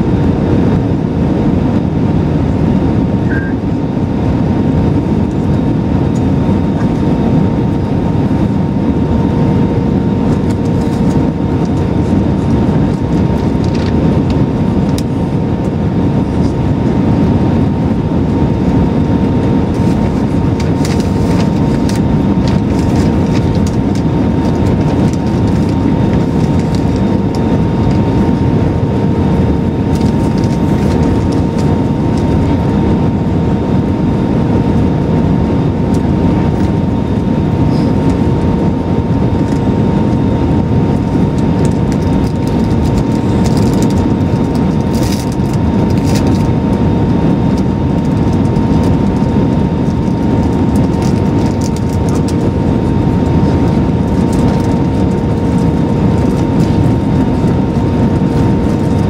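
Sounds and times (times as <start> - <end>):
jet engines droning: 0.0 - 59.0
low hum: 0.0 - 59.0
steady whine: 0.0 - 59.0.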